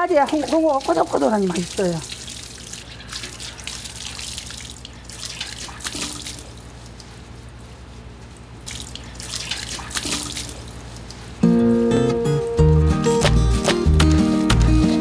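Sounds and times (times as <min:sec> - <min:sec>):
water dripping: 0:00.0 - 0:07.2, 0:08.2 - 0:11.3
water from hose splashing: 0:00.0 - 0:11.4.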